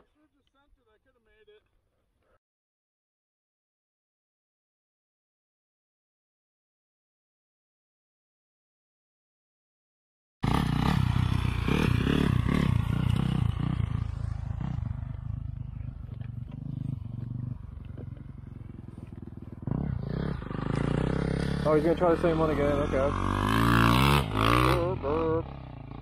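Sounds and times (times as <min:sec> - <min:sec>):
dirt bike engine at low revs: 0:10.4 - 0:26.0.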